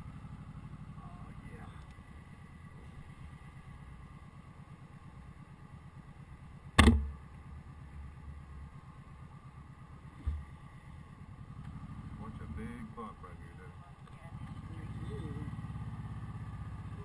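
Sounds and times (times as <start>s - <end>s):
motorcycle engine throbbing: 0.0s - 17.0s
low thump: 6.8s - 7.2s, 10.2s - 10.6s
sharp knock: 6.8s - 7.2s.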